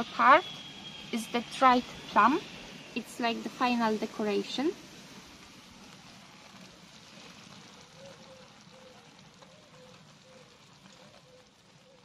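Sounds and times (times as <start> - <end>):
faint background music: 0.0 - 4.8.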